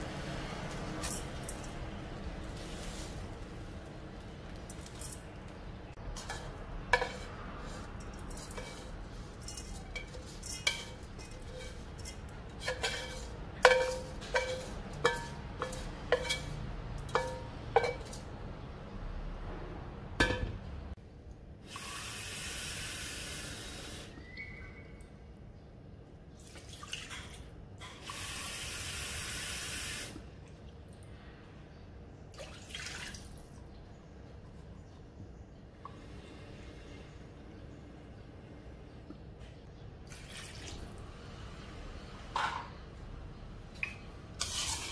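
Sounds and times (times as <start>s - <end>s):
spatula clanking in metal pot: 6.2s - 18.3s.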